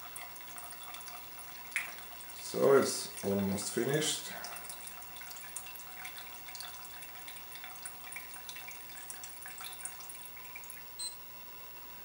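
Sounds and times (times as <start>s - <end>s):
petrol dripping into plastic cylinder: 0.0s - 2.4s.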